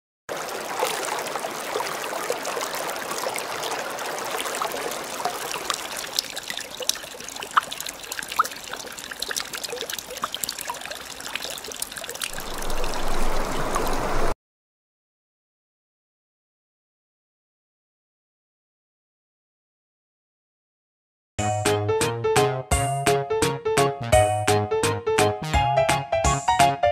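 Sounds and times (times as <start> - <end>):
water trickling into pool: 0.3 - 14.4
water drips plinking: 0.4 - 14.4.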